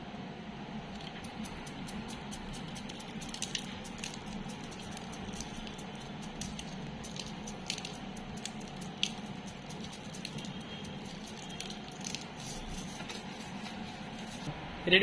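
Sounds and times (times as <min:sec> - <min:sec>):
low background hum: 0:00.0 - 0:15.0
sugar sprinkles pattering: 0:00.8 - 0:14.5.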